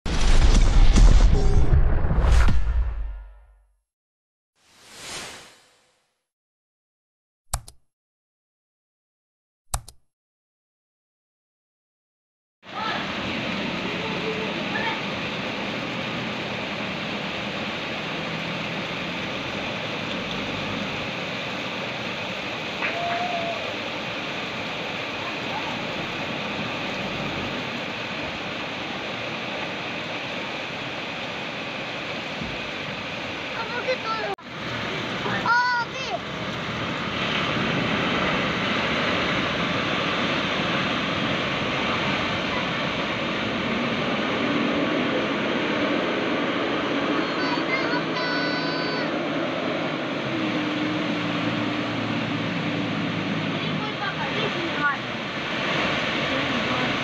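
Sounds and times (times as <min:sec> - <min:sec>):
landslide rushing: 0:00.1 - 0:03.2, 0:19.0 - 0:52.9
floodwater running down street: 0:12.7 - 0:57.0
rain: 0:12.7 - 0:57.0.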